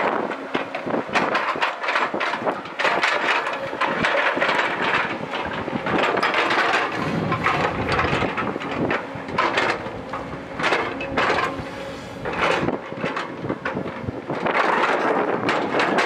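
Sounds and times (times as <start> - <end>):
excavator diesel engine under load: 0.0 - 16.0
bucket scraping rocks and soil: 1.2 - 13.4.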